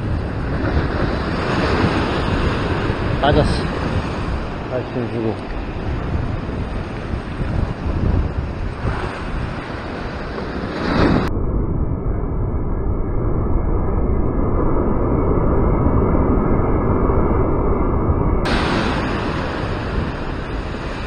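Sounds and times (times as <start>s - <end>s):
surf crashing on rocks: 0.0s - 11.3s, 18.5s - 21.0s
wind buffeting microphone: 0.0s - 21.0s.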